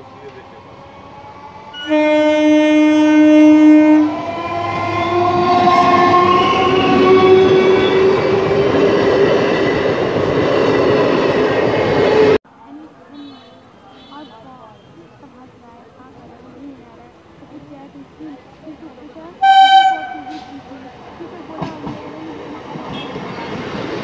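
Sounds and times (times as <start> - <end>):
train rumble and wheel clatter: 0.0 - 13.0, 14.2 - 24.0
train horn blast: 1.8 - 8.5, 19.4 - 20.6.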